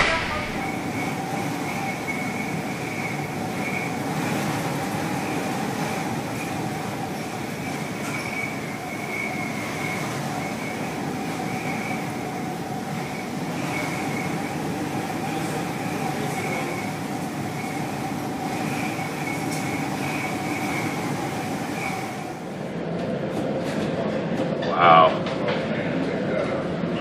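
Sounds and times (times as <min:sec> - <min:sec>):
steady rumbling: 0:00.0 - 0:03.5
wind whistling: 0:00.0 - 0:22.9.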